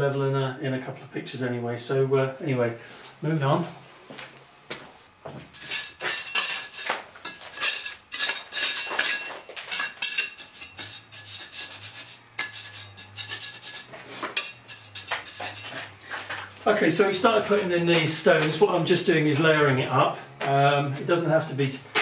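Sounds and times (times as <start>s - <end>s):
stones scraping and clinking: 5.6s - 15.9s.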